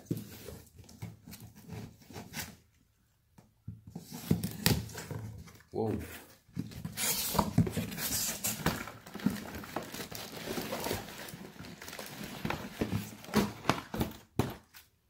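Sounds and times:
cardboard rustling: 3.9 - 15.0
bubble wrap crinkling: 7.0 - 14.2.

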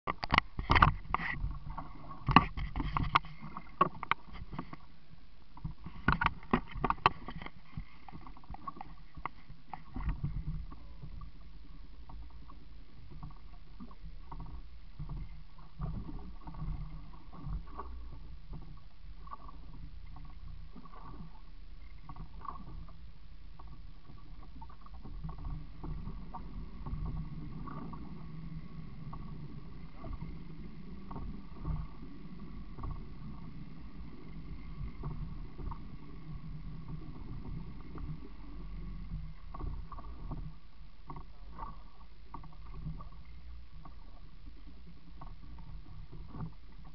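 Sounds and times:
sharp knocks and clicks: 0.1 - 1.5, 2.2 - 4.8, 5.6 - 10.6
water slapping boat hull: 0.1 - 4.9, 5.5 - 46.9
steady low hum: 0.1 - 46.9.

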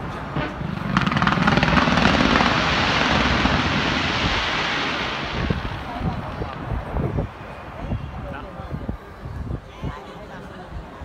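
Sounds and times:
fireworks popping and crackling: 0.0 - 7.1.

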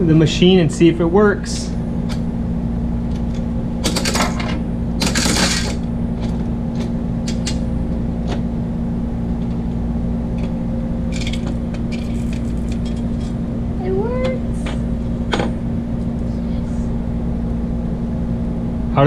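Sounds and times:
steady low hum: 0.0 - 19.0
metallic coin mechanism rattle: 3.9 - 5.8, 11.1 - 13.3
coins going into machine: 5.0 - 5.8.

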